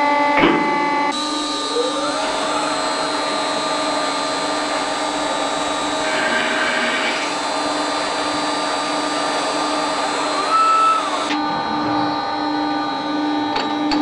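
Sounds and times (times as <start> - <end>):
machine whine over hiss: 1.0 - 14.0.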